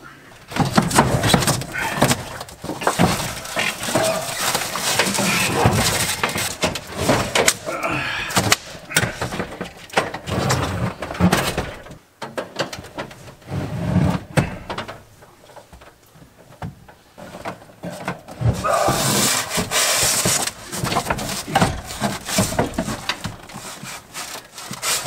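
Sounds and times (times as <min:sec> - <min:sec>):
air conditioner unit dragged: 0:00.4 - 0:07.7, 0:09.0 - 0:12.0, 0:13.0 - 0:14.7, 0:17.2 - 0:25.0
plastic clattering and knocking: 0:00.4 - 0:25.0.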